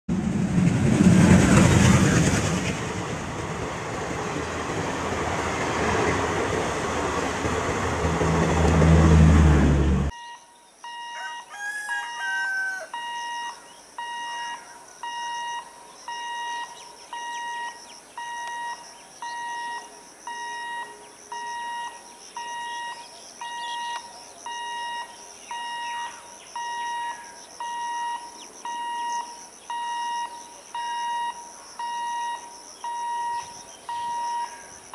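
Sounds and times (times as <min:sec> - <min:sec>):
level-crossing alarm beeping: 0:10.1 - 0:34.7.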